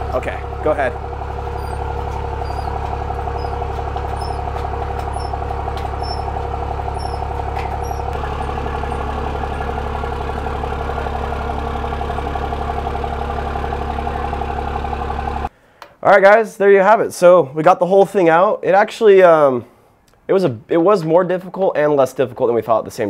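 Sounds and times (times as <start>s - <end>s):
engine idling: 0.0s - 15.5s.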